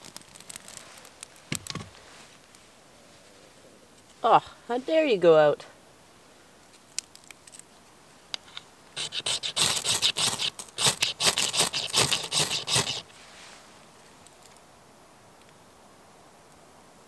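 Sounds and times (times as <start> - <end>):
knife scraping ferro rod: 9.0 - 13.1.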